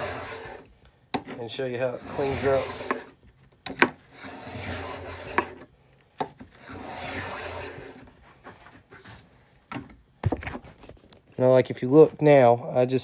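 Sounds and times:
hand plane shaving wood: 0:00.0 - 0:00.7, 0:01.4 - 0:03.2, 0:04.0 - 0:05.6, 0:06.4 - 0:08.1.

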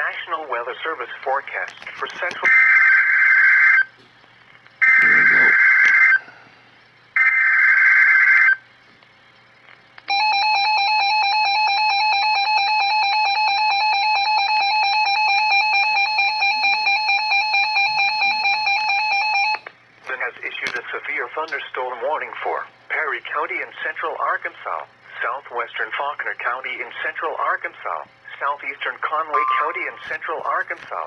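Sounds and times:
harsh buzzy data bursts: 0:04.8 - 0:06.2
steady attention tone: 0:04.8 - 0:07.2, 0:29.2 - 0:30.7.

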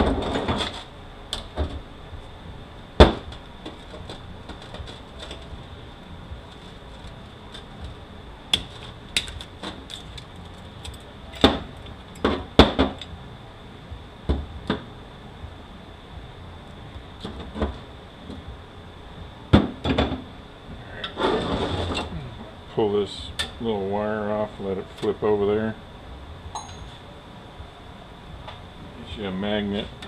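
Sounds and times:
faint steady high tone: 0:26.5 - 0:27.2.

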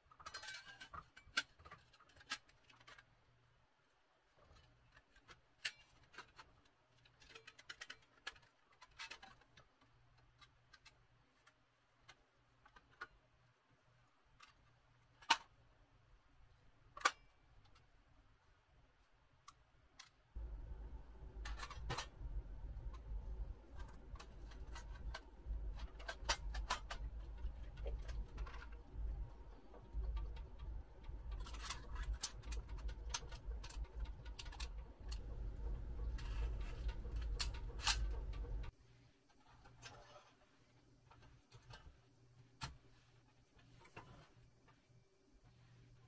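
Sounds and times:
metal toy parts clicking: 0:04.5 - 0:13.1, 0:21.4 - 0:38.7
low steady rumble: 0:20.4 - 0:39.0.

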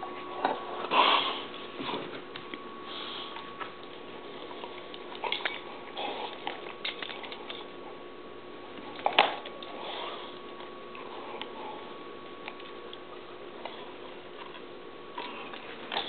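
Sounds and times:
dog breathing and snuffling: 0:00.8 - 0:02.2, 0:02.8 - 0:07.8, 0:09.6 - 0:12.0.

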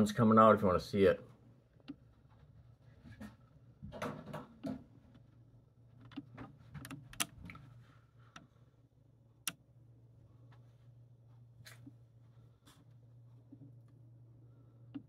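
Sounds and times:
low steady hum: 0:00.0 - 0:15.0
small clicks and taps: 0:06.0 - 0:07.6.

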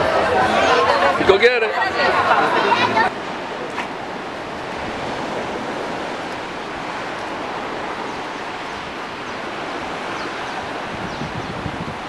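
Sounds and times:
sea surf washing onto rocks: 0:00.0 - 0:12.0.

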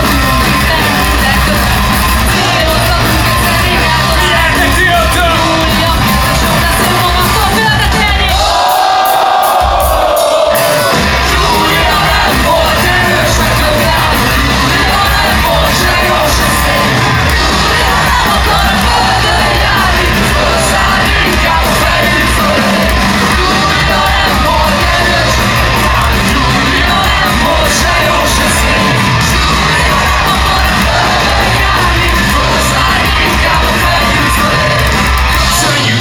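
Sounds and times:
crowd shouting along: 0:00.0 - 0:36.0
punk rock band playing live: 0:00.0 - 0:36.0
singer: 0:00.0 - 0:36.0.

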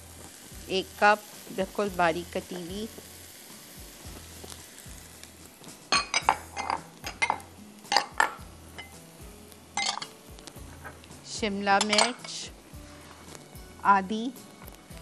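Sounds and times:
glass bowls and utensils clinking: 0:05.9 - 0:09.0, 0:09.8 - 0:10.2, 0:11.8 - 0:12.4.

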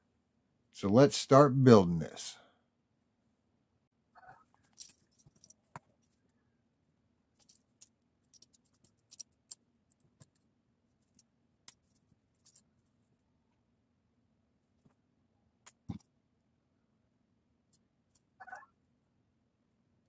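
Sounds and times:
plastic pieces clicking: 0:07.4 - 0:10.4.

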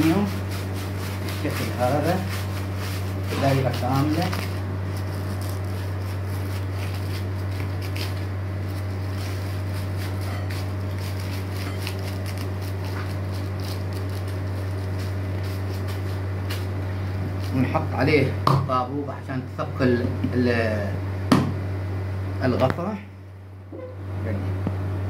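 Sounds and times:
aluminium foil crinkling: 0:00.0 - 0:17.9
steady low hum: 0:00.0 - 0:25.0.

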